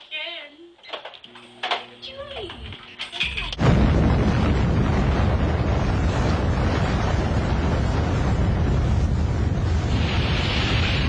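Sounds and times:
rumbling explosion blast: 3.6 - 11.0.

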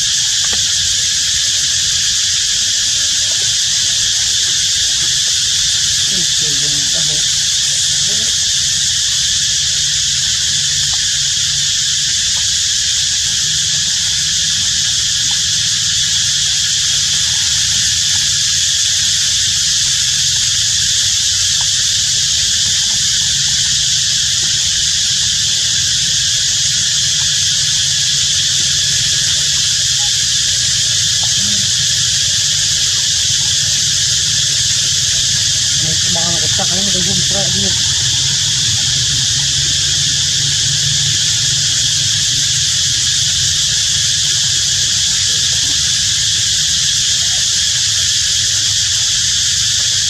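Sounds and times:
high-pitched insect drone: 0.0 - 50.0
low rumble: 33.9 - 44.4.

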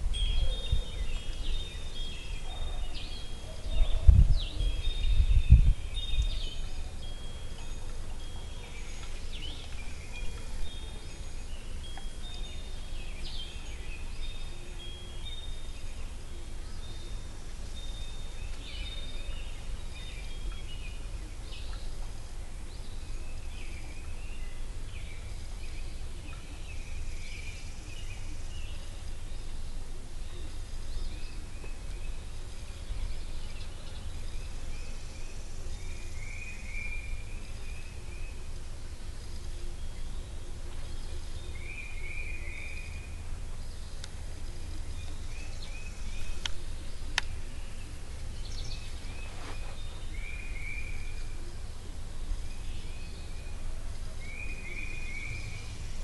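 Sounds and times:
bird chirps and calls: 0.0 - 22.0
steady low rumble: 0.0 - 56.0.

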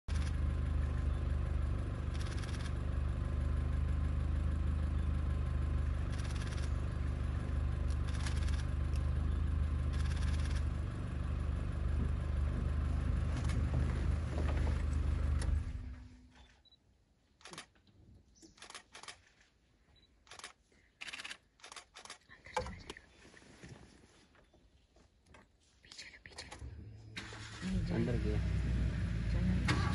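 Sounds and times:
vehicle engine idling: 0.1 - 16.4, 18.5 - 19.1, 20.2 - 22.2, 26.5 - 29.9.

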